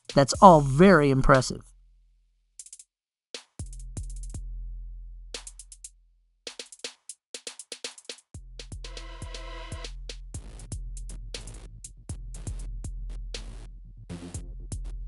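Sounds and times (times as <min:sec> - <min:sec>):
drum machine beat: 0:00.0 - 0:01.1, 0:06.5 - 0:15.0.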